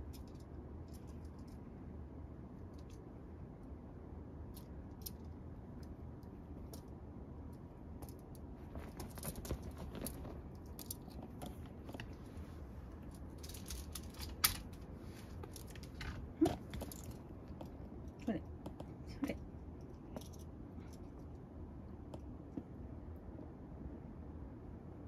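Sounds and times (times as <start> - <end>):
rustling and clicking: 4.5 - 21.4.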